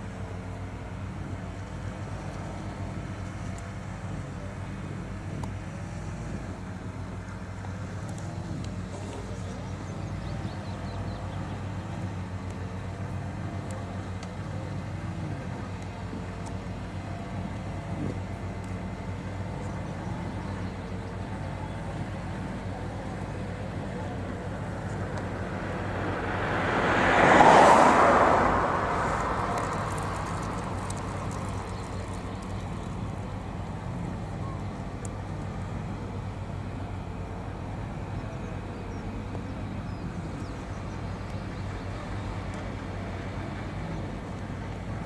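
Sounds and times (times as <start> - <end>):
flail mower engine drone: 0.0 - 45.0
rush of noise: 23.2 - 33.2.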